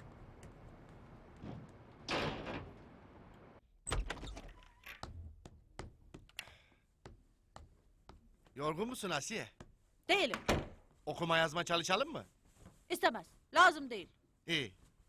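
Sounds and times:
door swinging shut: 0:01.4 - 0:03.0.

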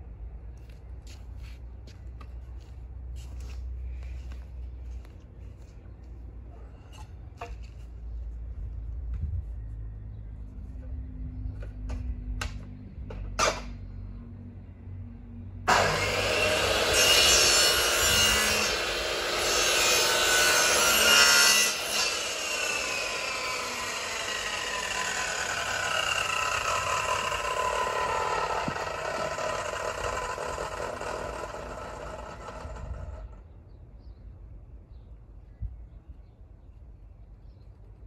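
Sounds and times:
saw motor winding down: 0:15.7 - 0:20.9, 0:21.7 - 0:33.4
mitre saw cutting: 0:15.7 - 0:33.3.

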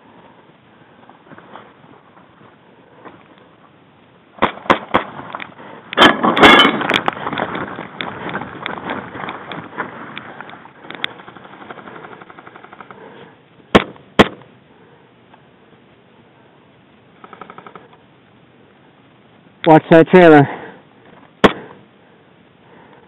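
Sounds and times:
clattering scuffle: 0:06.0 - 0:09.9
automatic airsoft fire rattle: 0:10.9 - 0:13.0.

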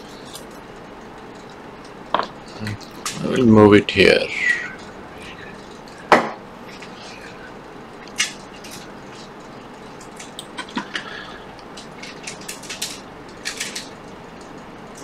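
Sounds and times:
small parts and tools clicking: 0:08.0 - 0:15.0.

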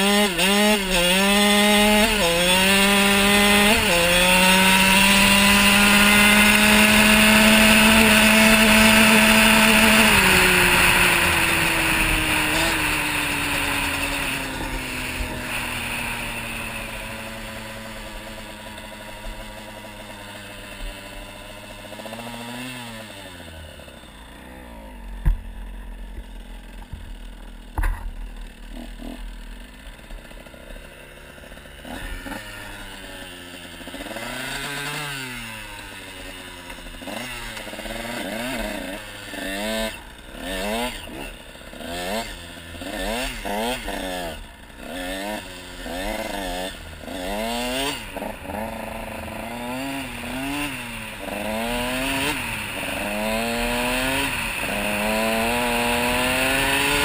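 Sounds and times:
motorcycle engine revving: 0:00.0 - 0:57.0
sharp thumps: 0:25.2 - 0:30.3.

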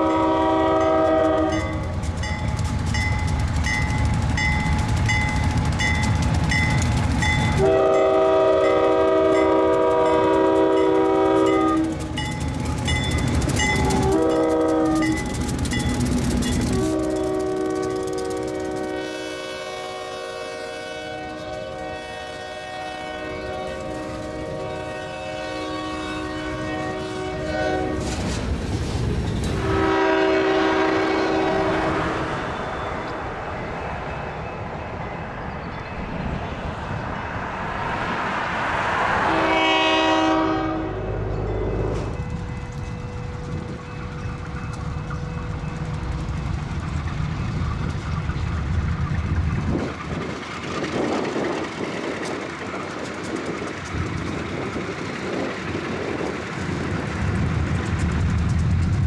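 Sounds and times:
train horn blasts: 0:00.0 - 0:02.0, 0:07.5 - 0:12.1, 0:13.7 - 0:15.4, 0:16.5 - 0:28.3, 0:29.5 - 0:32.7, 0:39.2 - 0:42.3
locomotive engine running: 0:00.0 - 0:37.1, 0:40.8 - 0:59.0
locomotive bell ringing: 0:00.8 - 0:18.8, 0:32.3 - 0:36.6, 0:41.0 - 0:48.7.

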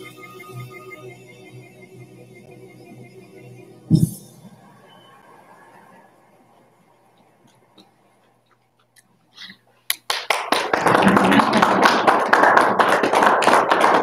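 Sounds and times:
people applauding: 0:09.9 - 0:14.0.

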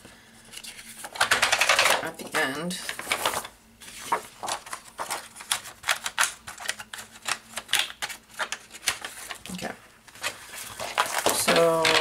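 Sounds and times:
paper rustling: 0:02.8 - 0:12.0.

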